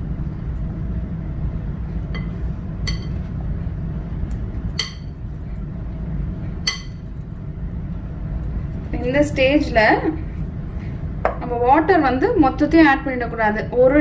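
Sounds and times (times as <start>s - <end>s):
steady low hum: 0.0s - 14.0s
glass bowl clinking: 2.2s - 3.2s, 4.8s - 5.2s, 6.7s - 7.0s.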